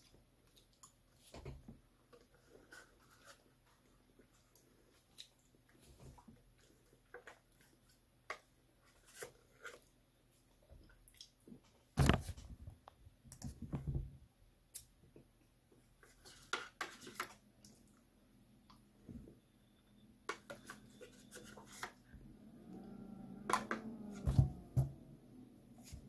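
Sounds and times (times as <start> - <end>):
low rumble of handling: 22.2 - 26.0.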